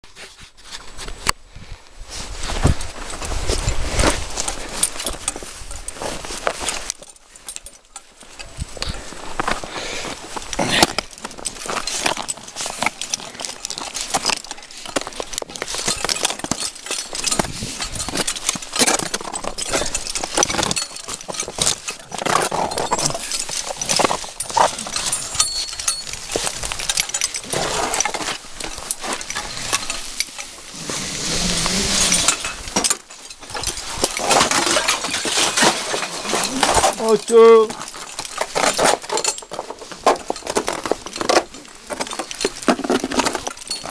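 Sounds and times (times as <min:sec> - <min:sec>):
clothing and gear rustling: 0:00.0 - 0:43.9
scraping rush: 0:21.7 - 0:32.8.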